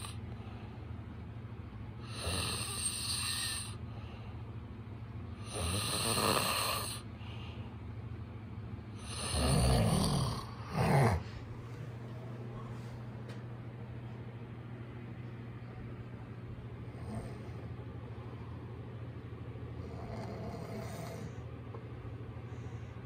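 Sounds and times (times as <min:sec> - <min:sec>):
man snoring: 0:00.0 - 0:00.2, 0:02.0 - 0:03.8, 0:05.4 - 0:07.1, 0:09.0 - 0:11.3, 0:16.9 - 0:17.6, 0:19.8 - 0:21.4.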